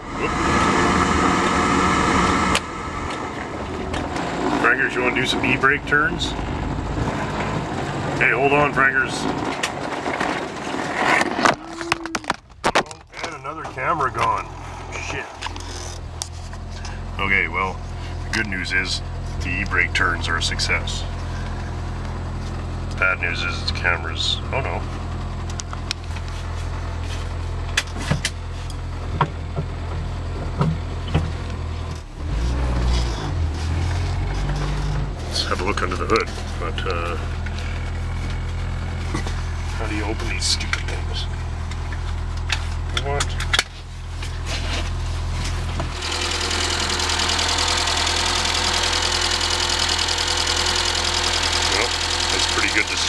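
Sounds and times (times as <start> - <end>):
car engine running: 0.0 - 53.0.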